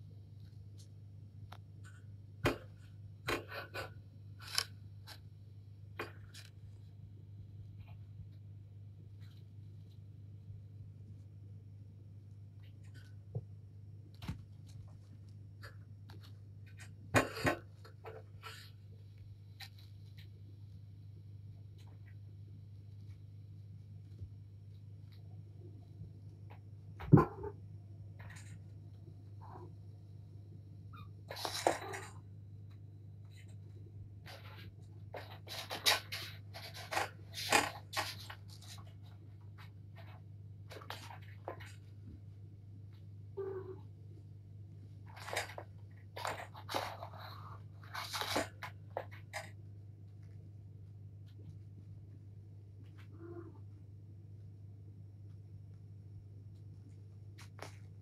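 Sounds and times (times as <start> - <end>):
kittens scratching and rustling: 26.1 - 29.8, 30.9 - 43.5, 44.7 - 53.7, 56.4 - 58.0
kitten claws scratching carpet: 33.3 - 42.0, 45.0 - 49.6.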